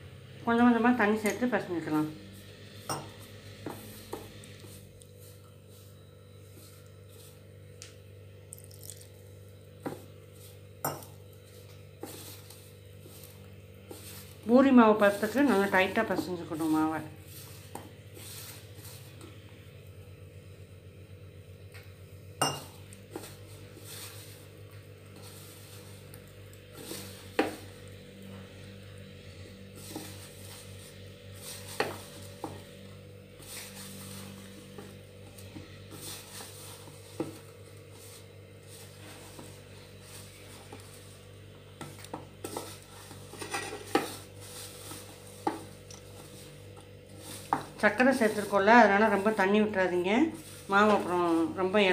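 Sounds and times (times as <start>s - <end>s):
steady low hum: 0.0s - 51.9s
hands kneading dough in bowl: 9.8s - 19.3s, 29.7s - 51.9s.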